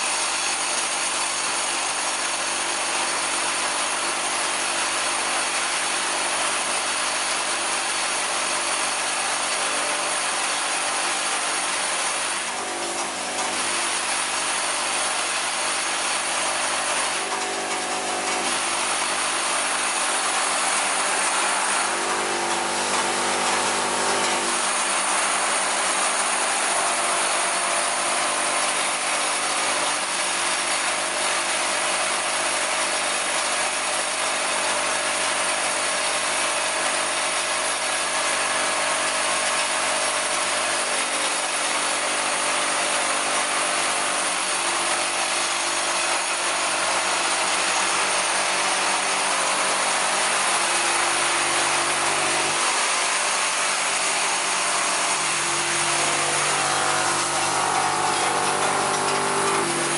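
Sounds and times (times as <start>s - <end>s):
machine hum: 6.2s - 31.8s, 38.4s - 59.9s.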